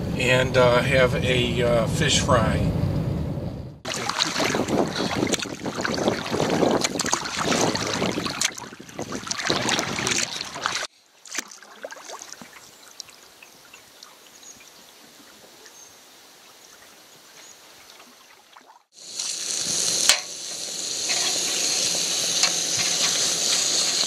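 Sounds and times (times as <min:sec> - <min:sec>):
wind noise on microphone: 0:02.6 - 0:10.9
water slapping against canoe: 0:03.9 - 0:13.2
faint water lapping: 0:03.9 - 0:19.0.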